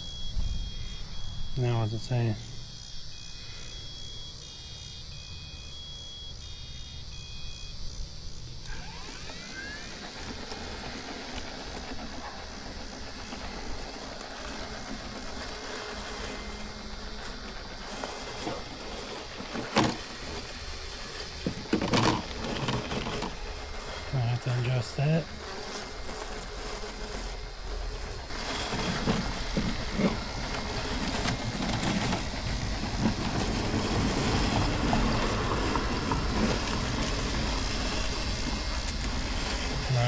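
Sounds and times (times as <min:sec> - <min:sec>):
electronic two-tone beeps: 0:03.2 - 0:07.7
robotic lawnmower cutting grass: 0:08.3 - 0:40.0.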